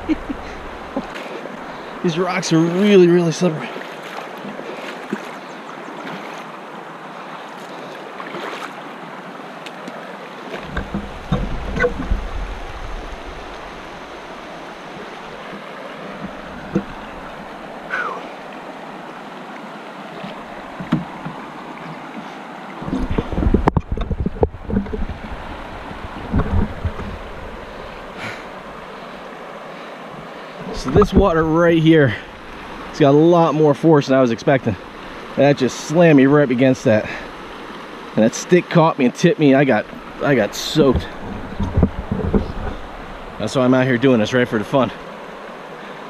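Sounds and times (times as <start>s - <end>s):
water rushing over rocks: 0.0s - 46.0s
low rumbling and knocking: 10.7s - 13.7s, 22.9s - 27.5s, 40.8s - 43.0s.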